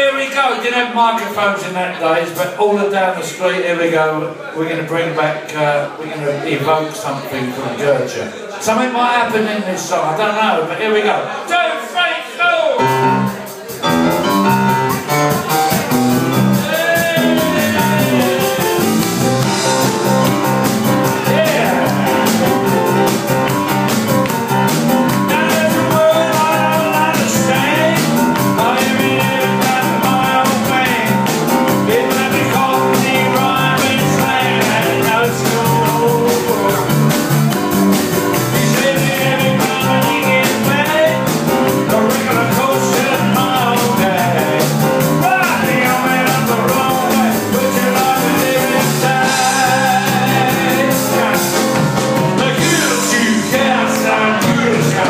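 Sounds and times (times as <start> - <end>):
live rock band playing: 12.8 - 55.0.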